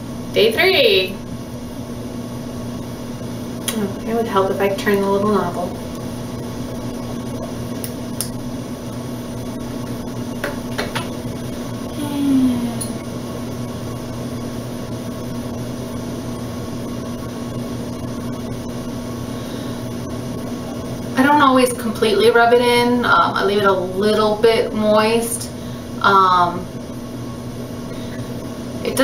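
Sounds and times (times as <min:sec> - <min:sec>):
low mechanical hum: 0:00.0 - 0:29.0
falling vocal hum: 0:11.8 - 0:13.1.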